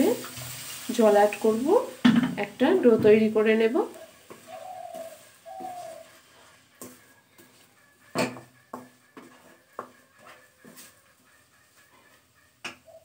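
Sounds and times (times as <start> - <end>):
spatula scraping dough in pan: 4.1 - 12.3
spatula knocking against pan: 6.8 - 10.8.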